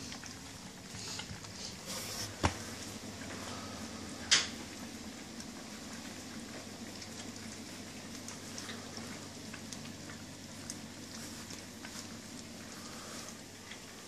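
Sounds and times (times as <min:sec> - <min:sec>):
puppies crunching dry kibble: 0:00.0 - 0:14.0.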